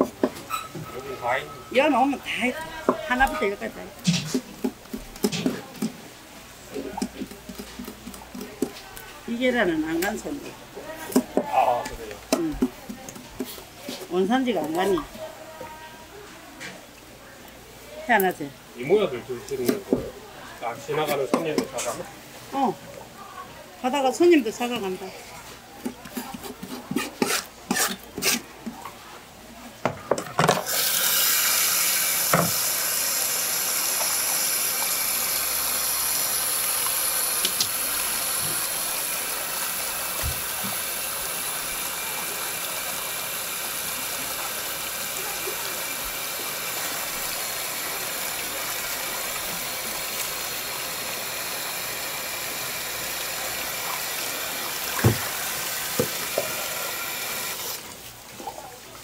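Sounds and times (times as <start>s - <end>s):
tap water pouring into a basin: 2.7s - 9.2s, 29.8s - 59.0s.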